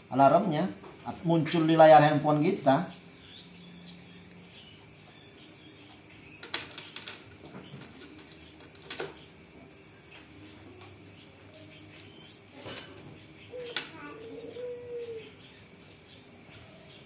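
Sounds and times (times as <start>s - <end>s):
clicks and knocks at bird cage: 6.4s - 9.5s, 12.6s - 14.0s.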